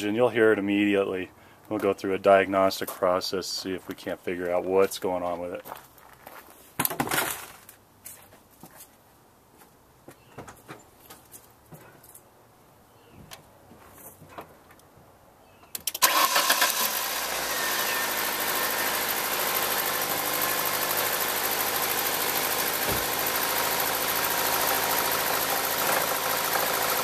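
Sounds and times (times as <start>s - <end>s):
engine cranking and starting: 15.8s - 27.0s
engine idling with knock: 18.3s - 27.0s.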